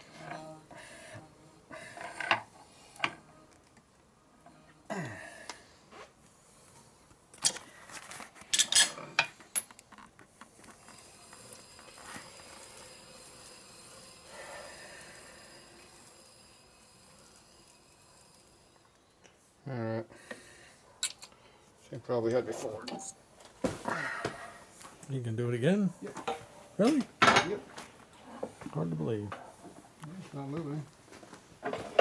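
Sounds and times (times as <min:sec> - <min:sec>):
faint steady background noise: 0:00.0 - 0:32.0
metal tools clinking: 0:08.5 - 0:09.8, 0:21.0 - 0:21.4.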